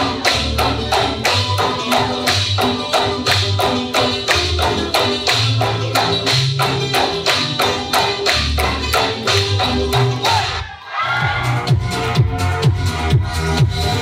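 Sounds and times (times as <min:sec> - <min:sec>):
background music with quick beat: 0:00.0 - 0:14.0
bass line: 0:00.0 - 0:14.0.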